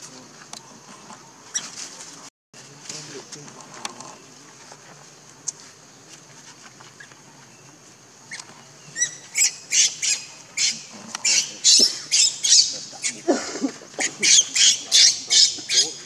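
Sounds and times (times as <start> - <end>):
monkey squealing shrilly: 9.0 - 13.3, 14.0 - 16.0.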